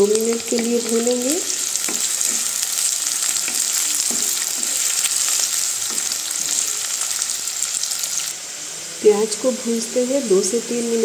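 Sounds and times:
onions sizzling in hot oil: 0.0 - 11.0
wooden spatula stirring: 0.8 - 7.3.

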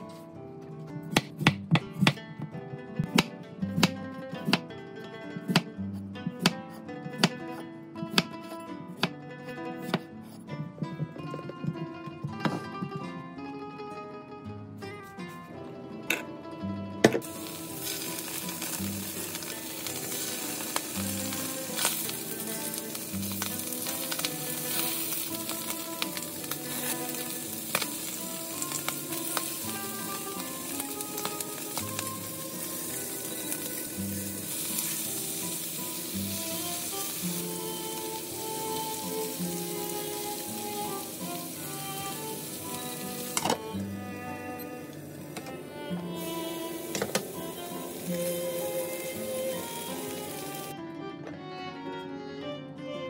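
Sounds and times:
food sizzling in hot oil: 17.2 - 43.6, 46.2 - 50.7.

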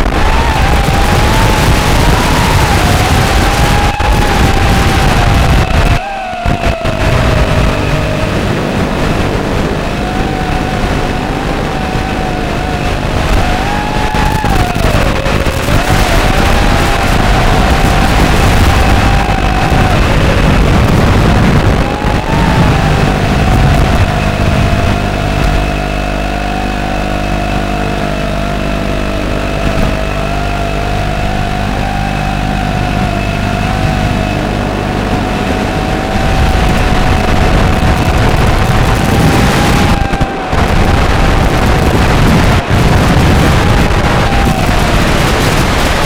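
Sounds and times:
drone motors whining: 0.0 - 46.0
rushing noise: 0.0 - 46.0.

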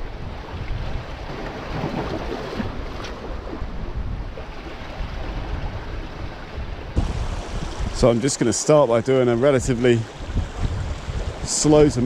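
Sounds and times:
wind buffeting microphone: 0.0 - 12.0
waves splashing against rocks: 7.0 - 12.0.

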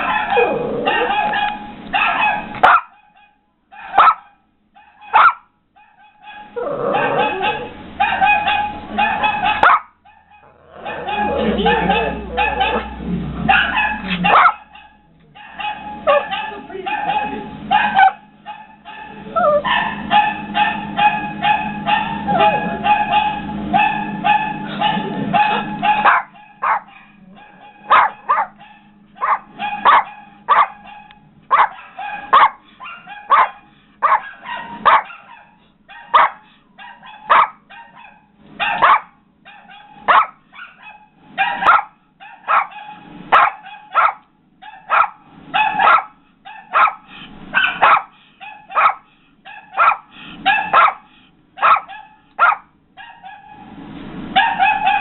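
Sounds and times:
small dog barking: 0.0 - 53.6, 54.4 - 55.0
recorded dog barking through speakers: 0.0 - 53.7, 54.3 - 55.0
low hum: 6.2 - 40.2.

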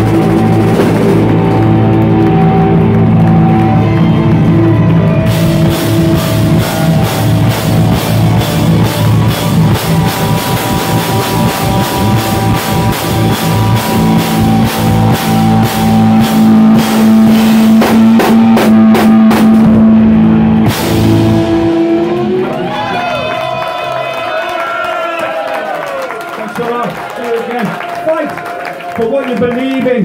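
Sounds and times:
live rock band playing: 0.0 - 24.3
drums beating fast: 0.0 - 28.4
cymbal crash: 5.3 - 22.4.

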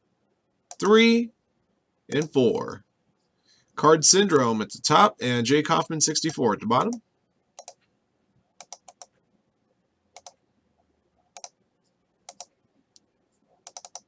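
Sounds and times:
mouse and keyboard clicks: 7.6 - 7.8, 8.6 - 9.1, 10.2 - 10.4, 11.3 - 11.6, 12.3 - 14.0.

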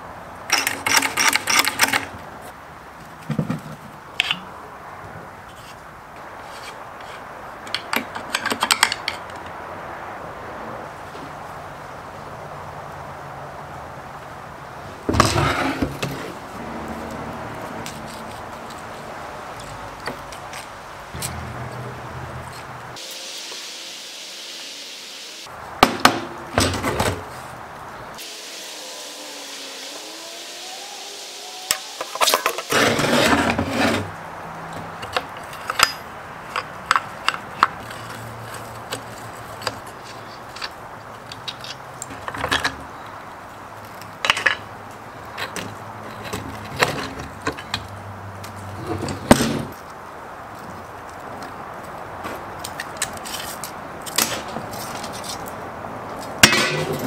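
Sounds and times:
metal parts clinking and knocking: 0.5 - 2.1
metal scraping: 15.1 - 23.6, 28.2 - 34.2, 56.4 - 57.0.

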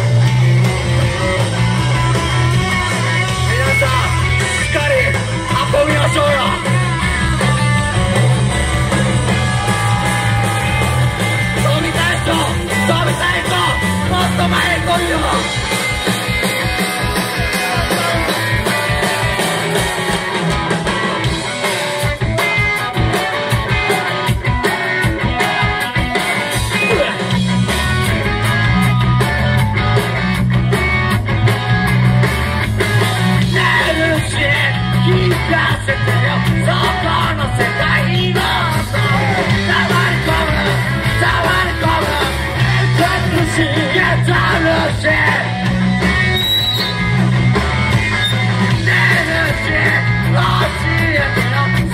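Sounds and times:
bass guitar: 0.0 - 51.9
rock band playing: 0.0 - 51.9
person singing: 33.4 - 45.6, 48.7 - 51.9.

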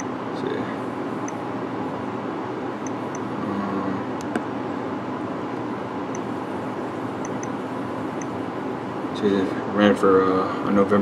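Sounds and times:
blower fan rushing: 0.0 - 11.0.

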